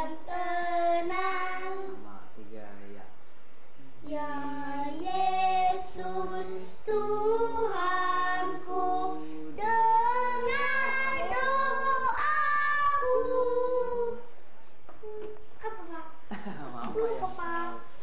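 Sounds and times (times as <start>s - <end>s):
child singing: 0.0s - 2.0s, 4.0s - 14.3s, 17.0s - 17.9s.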